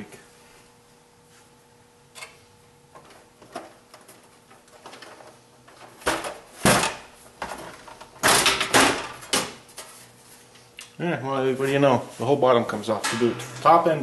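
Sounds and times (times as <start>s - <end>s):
sheet metal clattering: 13.0s - 14.0s.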